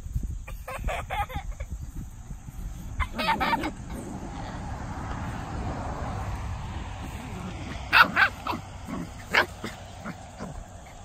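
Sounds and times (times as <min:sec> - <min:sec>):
low rumble: 0:01.7 - 0:11.0
puppies yipping: 0:02.8 - 0:04.2, 0:07.2 - 0:11.0.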